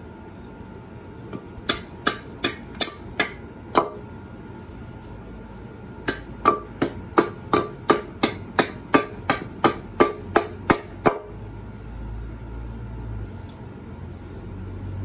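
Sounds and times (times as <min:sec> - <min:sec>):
axe chopping wood: 0:01.4 - 0:04.0, 0:06.1 - 0:11.3.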